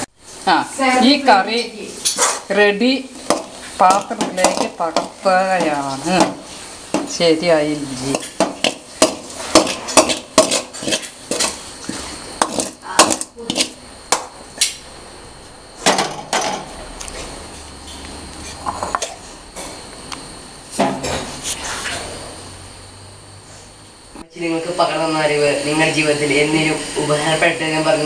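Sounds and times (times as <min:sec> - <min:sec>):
spoon scraping cooking pot: 0:08.0 - 0:13.8.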